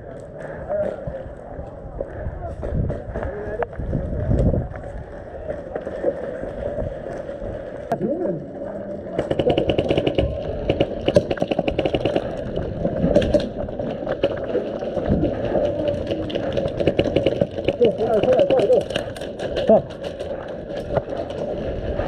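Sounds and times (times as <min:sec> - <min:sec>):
airsoft guns firing full-auto: 0:09.1 - 0:12.7, 0:15.8 - 0:20.3.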